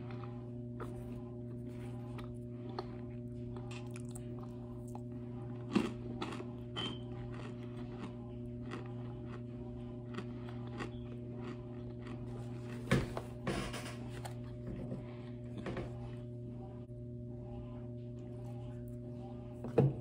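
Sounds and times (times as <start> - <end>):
low hum: 0.0 - 20.0
cornstarch crunching: 7.3 - 12.6.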